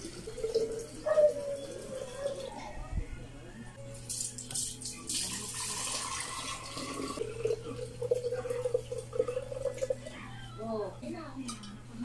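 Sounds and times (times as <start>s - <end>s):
liquid pouring and splashing: 4.5s - 10.0s.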